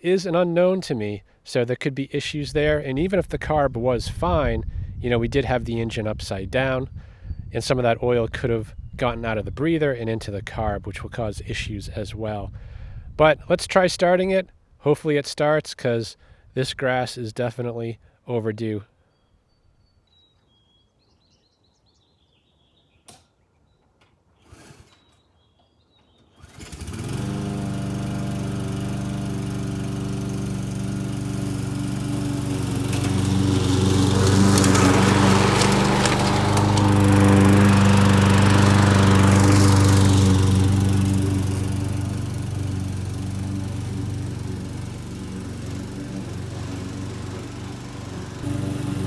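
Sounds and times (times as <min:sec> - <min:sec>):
lawn mower engine running: 0:26.3 - 0:49.0
mower cutting long grass: 0:26.4 - 0:49.0.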